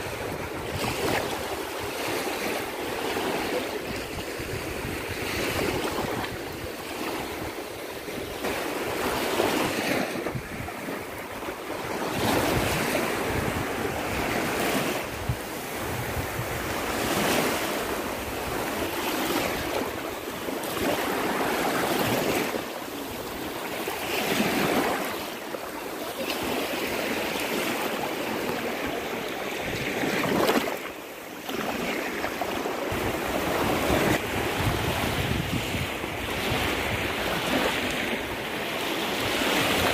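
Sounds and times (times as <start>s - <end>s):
wind on microphone: 0.0s - 25.2s, 26.2s - 39.9s
small waves washing over sand: 0.0s - 39.9s.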